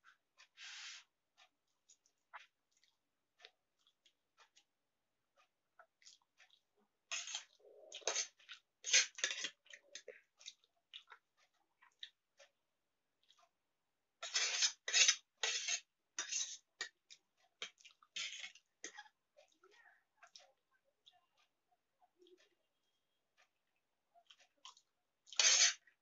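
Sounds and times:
slurping and chewing noodles: 0:01.9 - 0:04.7, 0:05.8 - 0:12.5, 0:14.2 - 0:21.5, 0:24.2 - 0:26.0
cutlery scraping on metal plate: 0:07.1 - 0:09.6, 0:14.2 - 0:16.9, 0:17.6 - 0:19.0, 0:25.3 - 0:25.8.

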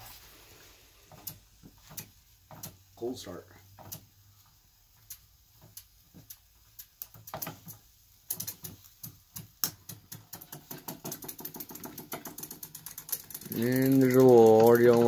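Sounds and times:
toy steam engine clattering: 0:09.4 - 0:15.0.

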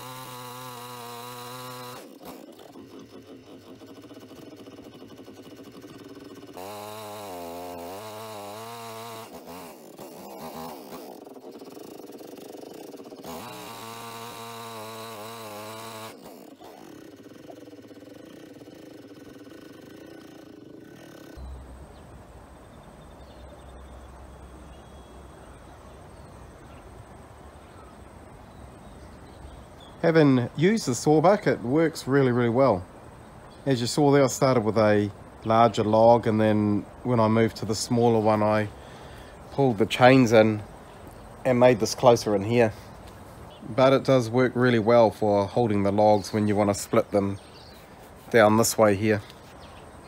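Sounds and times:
chainsaw idling: 0:00.0 - 0:21.5, 0:43.8 - 0:49.6
high insect trill: 0:00.0 - 0:50.0.

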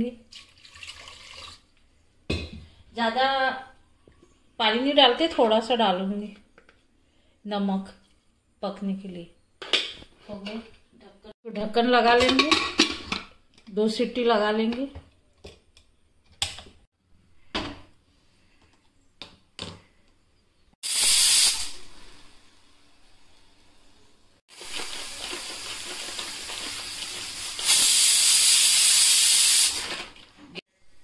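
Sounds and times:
pressure cooker whistle: 0:20.8 - 0:21.8, 0:27.6 - 0:29.8
steam hissing: 0:20.8 - 0:22.7, 0:24.5 - 0:30.0.

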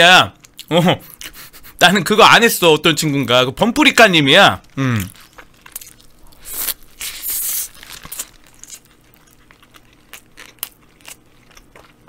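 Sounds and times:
soft chewing with mouth clicks: 0:04.6 - 0:12.0
person biting burger: 0:04.8 - 0:12.0
paper wrapper rustling: 0:06.4 - 0:08.9.

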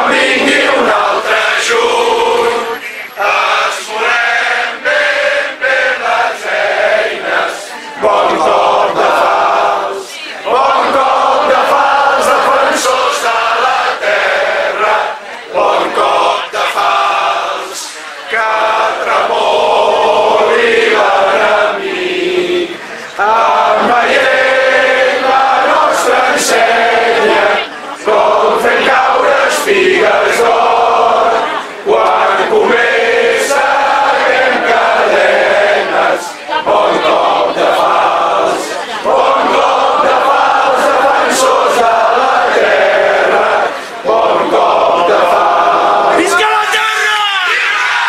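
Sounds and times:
crowd chanting: 0:00.0 - 0:48.0.

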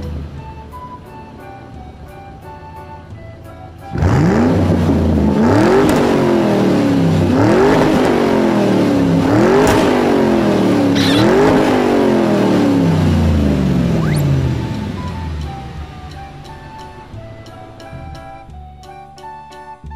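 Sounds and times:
recorded motorcycle engine revving: 0:03.9 - 0:18.2.

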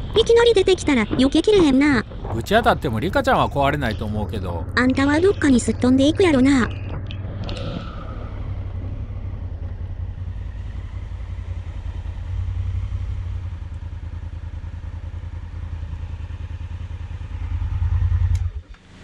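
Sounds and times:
motorcycle engine running: 0:02.0 - 0:19.0.

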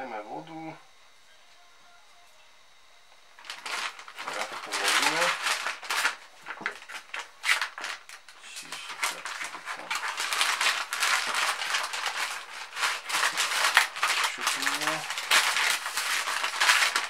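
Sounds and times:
plastic and foil crinkling: 0:03.4 - 0:17.0.

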